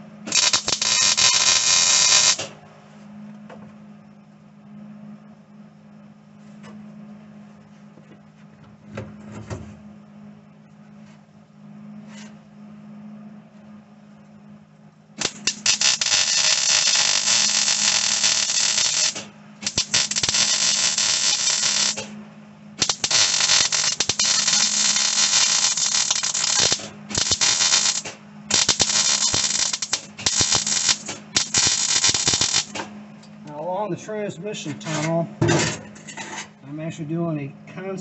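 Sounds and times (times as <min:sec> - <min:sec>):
steady low hum: 0:00.0 - 0:38.0
welder arc crackling: 0:00.3 - 0:02.6, 0:15.2 - 0:22.2, 0:22.8 - 0:33.7.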